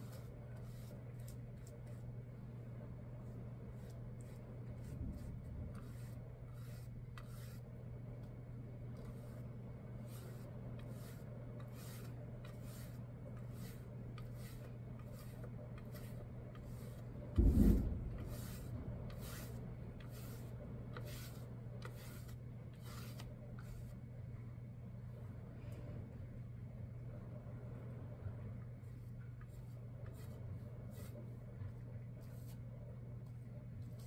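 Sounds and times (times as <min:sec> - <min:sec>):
paintbrush bristles rasping: 0:00.0 - 0:07.8, 0:08.9 - 0:24.0, 0:29.5 - 0:31.3
dull thump: 0:17.4 - 0:19.7.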